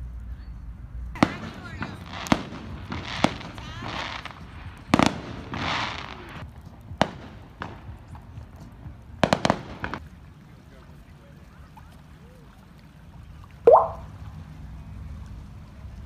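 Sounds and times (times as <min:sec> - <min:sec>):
fireworks bangs: 0:01.2 - 0:06.4, 0:09.2 - 0:10.0
fireworks crackling: 0:01.2 - 0:10.0.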